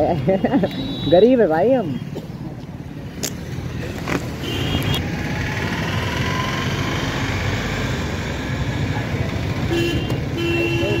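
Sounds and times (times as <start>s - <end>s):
vehicles passing on road: 0.0s - 11.0s
car horn toot: 9.7s - 11.0s.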